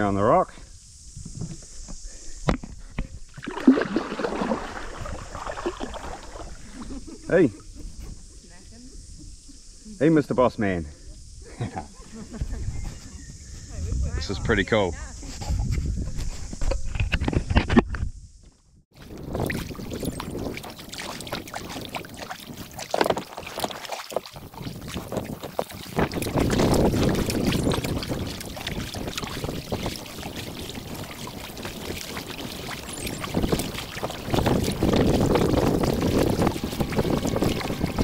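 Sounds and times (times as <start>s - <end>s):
kayak paddle strokes: 1.2s - 8.3s, 18.9s - 38.0s
water splashing against hull: 3.3s - 7.8s, 18.9s - 38.0s.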